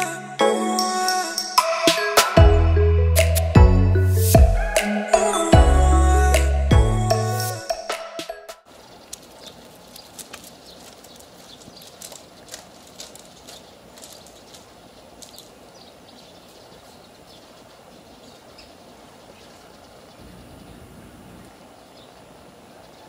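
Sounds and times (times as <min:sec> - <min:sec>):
steady background hiss: 0:08.7 - 0:23.0.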